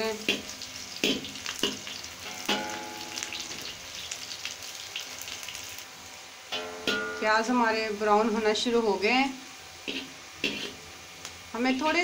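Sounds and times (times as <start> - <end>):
onions sizzling in oil: 0.0 - 12.0
metal ladle scraping pan: 9.8 - 10.8.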